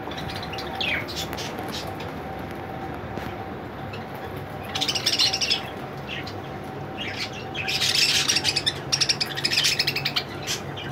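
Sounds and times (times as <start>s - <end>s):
budgerigars chirping: 4.6s - 6.4s, 7.0s - 10.9s.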